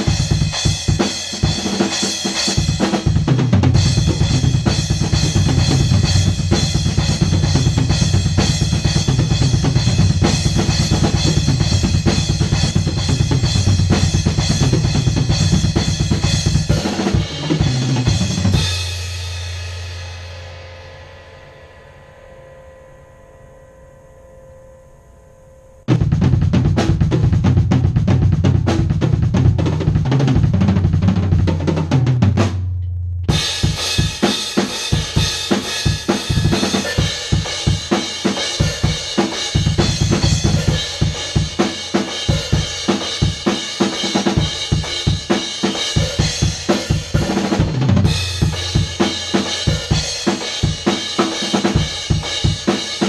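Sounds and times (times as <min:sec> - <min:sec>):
drum kit played hard: 0:00.0 - 0:21.4, 0:25.9 - 0:53.0
faint hum: 0:20.3 - 0:27.1.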